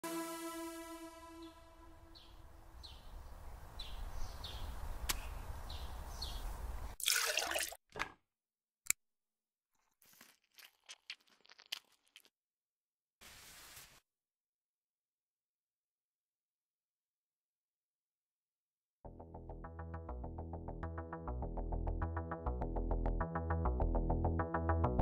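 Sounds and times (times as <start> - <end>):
milk pouring into a glass: 7.0 - 7.8, 10.0 - 12.3.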